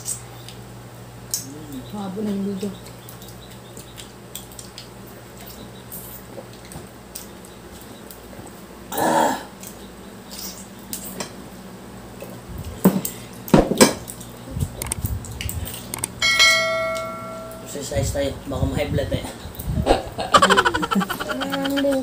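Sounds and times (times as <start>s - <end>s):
short hum-like vocal sound: 19.8s - 22.0s.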